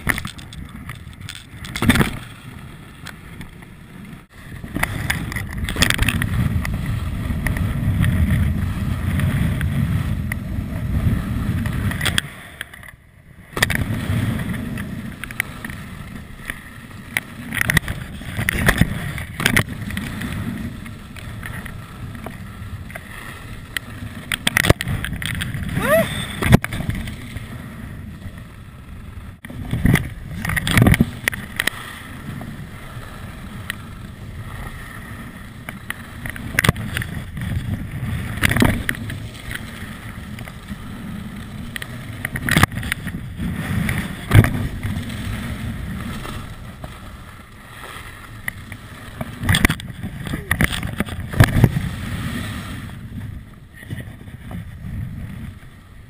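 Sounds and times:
skis running over snow: 0.0s - 12.7s, 13.5s - 56.0s
wind on microphone: 0.0s - 56.0s
ski edges scraping: 13.7s - 55.8s.

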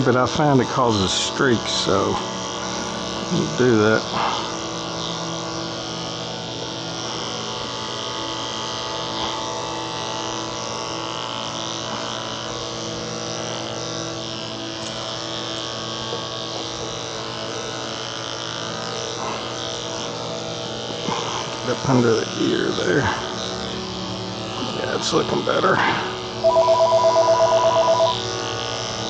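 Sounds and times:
electric clippers humming: 0.0s - 29.0s.

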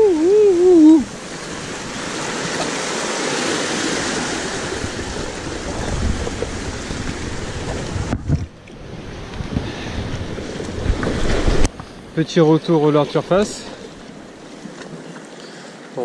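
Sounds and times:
wind rumbling on microphone: 0.0s - 12.2s
sea waves breaking: 0.0s - 16.0s.

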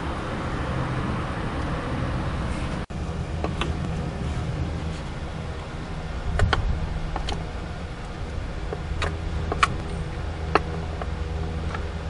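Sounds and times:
steady low hum: 0.0s - 12.0s
sharp clicks and ticks: 6.3s - 7.4s, 8.0s - 11.9s.

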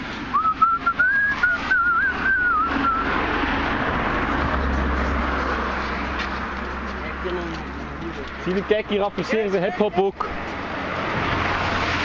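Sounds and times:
person whistling a wavering tune: 0.3s - 3.1s.

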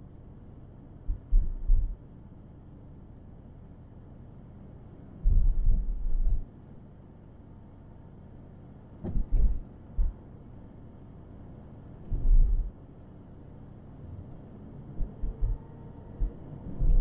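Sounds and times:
car road noise hum: 1.0s - 2.2s, 4.8s - 17.0s
heavy low thumps: 1.1s - 2.0s, 5.2s - 6.4s, 9.0s - 10.2s, 12.1s - 12.7s, 15.0s - 15.6s, 16.2s - 17.0s.

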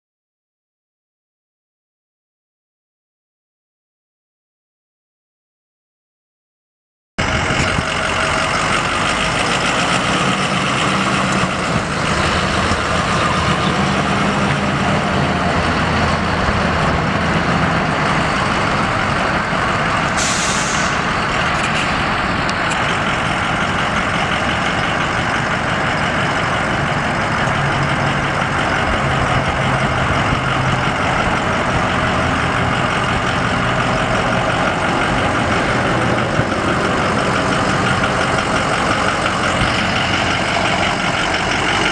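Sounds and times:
diesel truck engine idling: 7.2s - 41.9s
brief hiss: 20.2s - 21.0s.

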